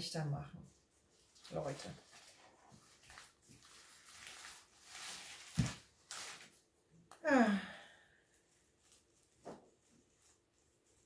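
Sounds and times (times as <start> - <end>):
woman sighing: 7.1 - 8.3
woman breathing out: 7.2 - 8.3.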